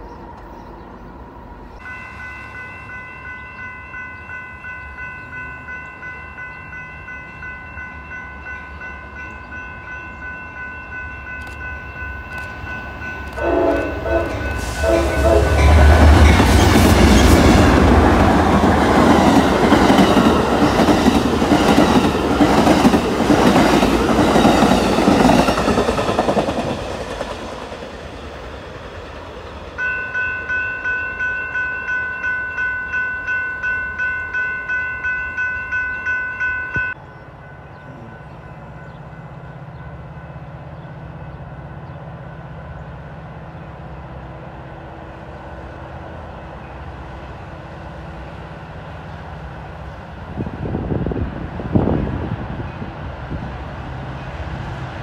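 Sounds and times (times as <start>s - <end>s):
crossing warning bells ringing: 1.4s - 28.4s, 29.0s - 44.3s
train wheels clacking on rails: 11.2s - 31.3s
train horn blasts: 13.3s - 16.7s.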